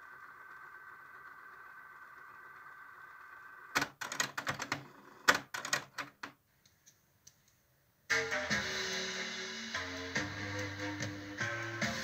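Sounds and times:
cassette tape whine: 0.0 - 5.3, 8.1 - 12.0
cassette mechanism clicks and clunks: 3.8 - 6.4.

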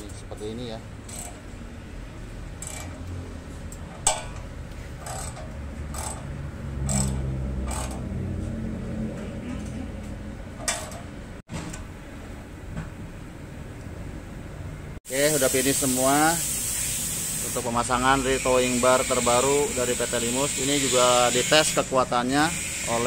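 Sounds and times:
metal parts and tools clicking: 1.0 - 1.5, 2.5 - 8.1, 10.6 - 11.2
low hum of voices or machinery: 6.8 - 14.9.

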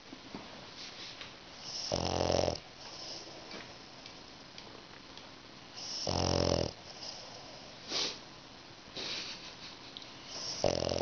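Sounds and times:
dog breathing softly: 0.9 - 3.8, 10.2 - 11.0
dog snoring: 1.6 - 3.3, 5.7 - 8.1, 10.3 - 11.0.

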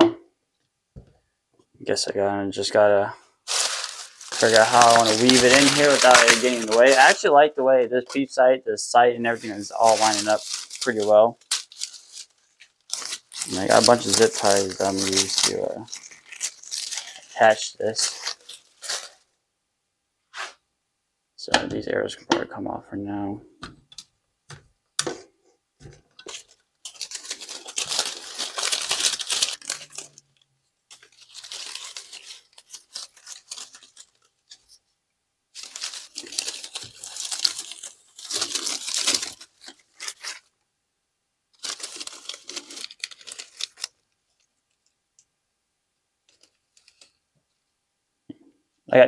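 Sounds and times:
plastic crinkling and rustling: 3.4 - 7.5, 9.2 - 19.3, 25.8 - 34.8, 35.5 - 40.5, 41.6 - 45.0, 46.2 - 47.2.

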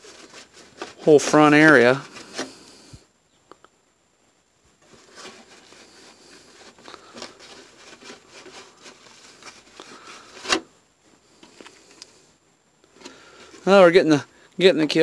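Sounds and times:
paper towel rustling on plastic: 0.0 - 3.0, 4.8 - 11.9.

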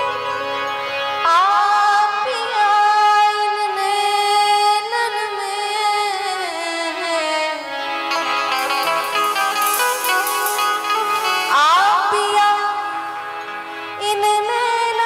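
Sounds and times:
string-like accompaniment: 0.0 - 3.8, 6.4 - 15.0
sliding melody line: 8.1 - 12.6.

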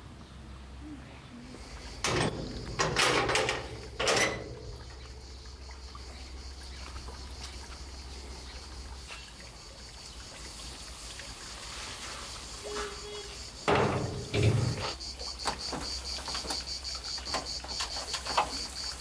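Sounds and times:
metal gate clanking and rattling: 2.0 - 5.2, 12.7 - 15.0.

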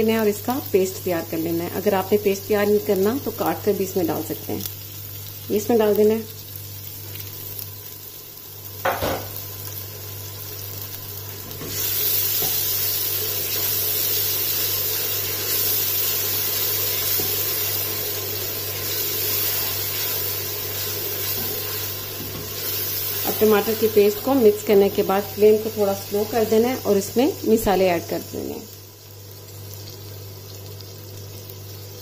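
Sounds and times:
tomato paste sizzling in oil: 0.0 - 32.0.

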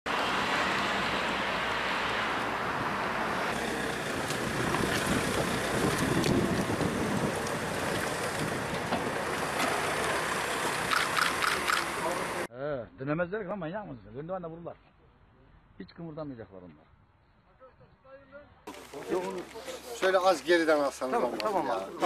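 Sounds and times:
traffic: 0.0 - 12.5, 16.5 - 22.0
wind rushing on microphone: 4.1 - 9.3.

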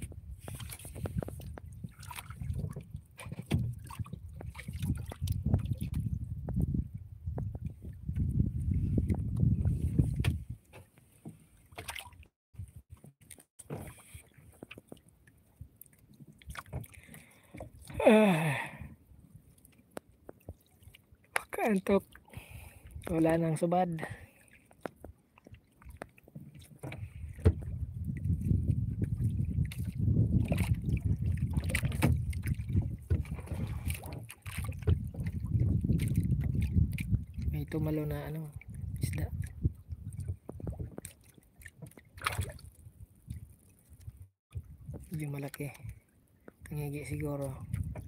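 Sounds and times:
water lapping: 0.0 - 6.2, 7.6 - 48.0
small knocks and splashes: 0.0 - 6.7, 7.3 - 18.0, 19.6 - 23.2, 24.2 - 48.0
light knocks on boat: 26.4 - 27.7.

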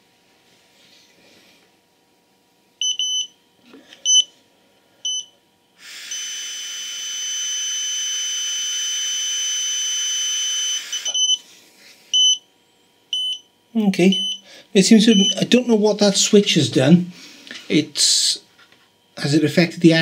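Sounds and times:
breathalyser beeping: 8.9 - 11.4, 14.1 - 14.5, 15.1 - 15.4.

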